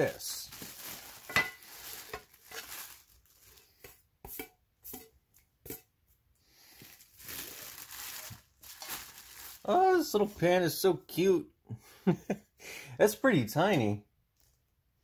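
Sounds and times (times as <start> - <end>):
plastic wrapping crinkling: 0.0 - 4.0, 6.6 - 10.4.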